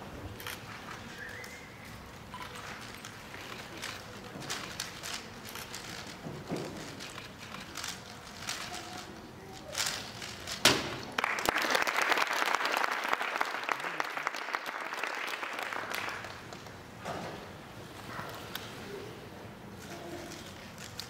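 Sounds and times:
audience applause: 11.1s - 16.5s.

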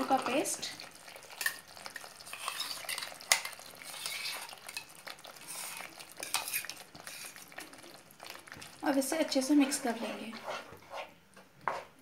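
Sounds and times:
light sizzle from pan: 0.0s - 10.4s
spatula scraping a pan: 2.3s - 7.5s, 9.6s - 12.0s.

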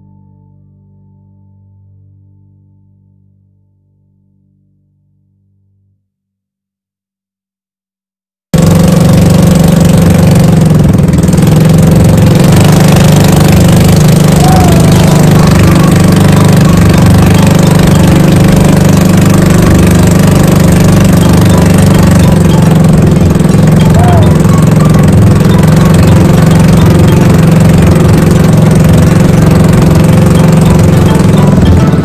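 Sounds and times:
boat engine droning: 8.6s - 32.0s.

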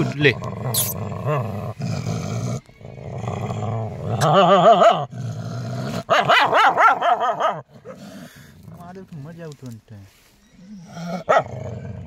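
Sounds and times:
dog growling: 0.0s - 8.9s, 10.6s - 12.0s
dog yowling and barking: 6.0s - 8.0s, 10.6s - 11.6s.

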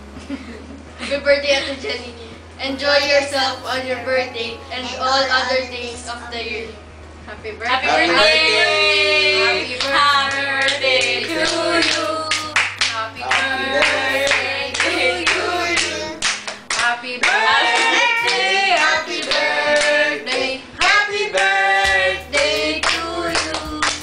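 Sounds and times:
group singing together: 2.8s - 6.8s, 7.9s - 24.0s
people clapping along: 9.6s - 24.0s.

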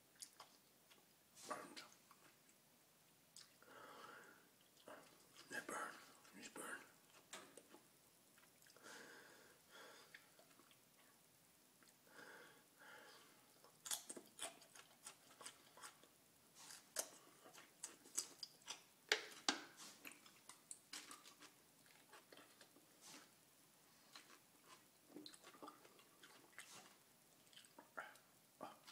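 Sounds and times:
garlic being chewed crunchily: 0.1s - 1.1s, 13.6s - 23.4s, 24.0s - 28.9s.

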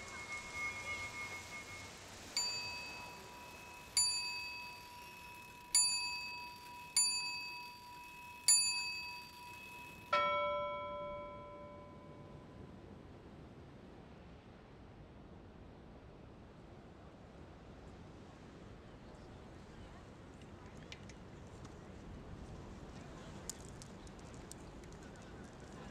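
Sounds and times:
bell-like metallic strikes: 0.0s - 12.5s.

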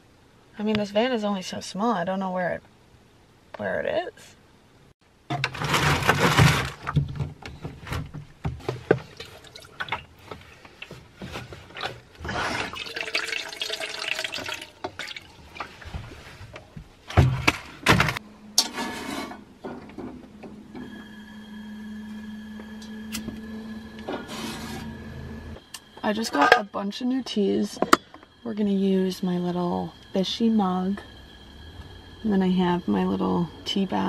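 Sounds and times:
water pouring into steel pot: 12.6s - 15.8s.

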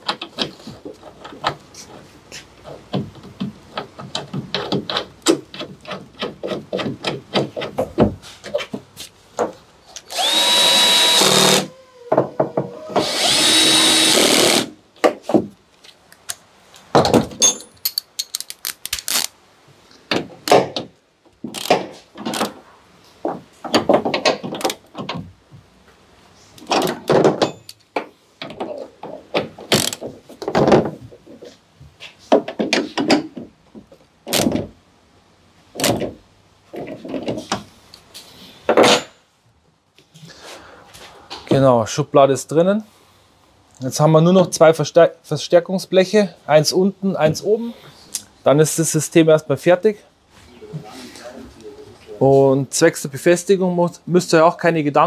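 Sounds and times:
hand tools clicking and knocking: 0.0s - 15.4s, 17.0s - 19.2s
power drill running: 10.1s - 11.7s, 13.0s - 14.7s.

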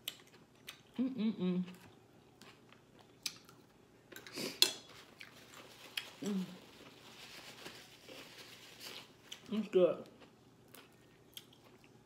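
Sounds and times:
person humming mm: 1.0s - 1.8s, 6.2s - 6.6s
paper napkin crackling: 5.3s - 9.3s
chewing: 10.2s - 12.0s.

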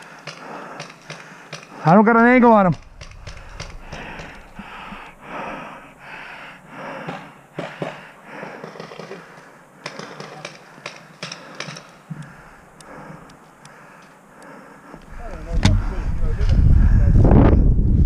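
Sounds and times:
heavy breathing: 0.0s - 1.9s, 2.8s - 17.3s
paintball markers firing: 9.8s - 12.0s.

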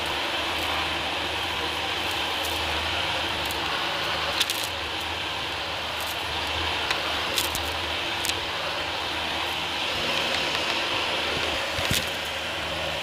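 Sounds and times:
vacuum cleaner running: 0.0s - 13.0s.

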